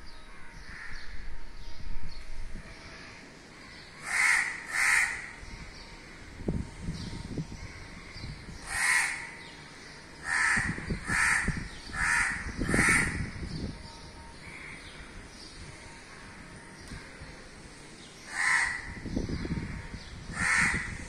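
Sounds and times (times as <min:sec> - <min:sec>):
crow cawing: 0:04.0 - 0:05.4, 0:08.7 - 0:09.4, 0:10.2 - 0:13.3, 0:18.3 - 0:19.0, 0:20.3 - 0:21.0.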